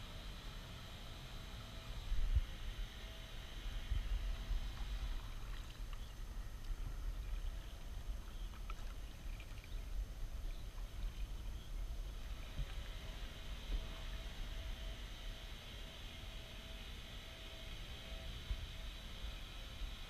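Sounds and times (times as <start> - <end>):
steady low rumble: 0.0 - 15.7.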